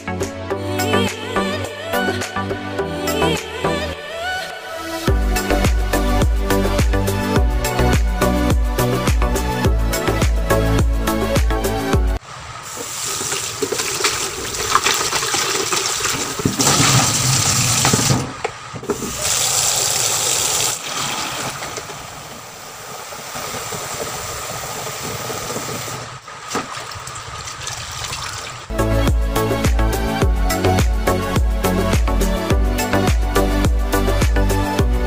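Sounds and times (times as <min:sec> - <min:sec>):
water filling plastic bucket: 0:12.6 - 0:28.7
tap water splashing in sink: 0:12.8 - 0:22.0, 0:26.5 - 0:28.5.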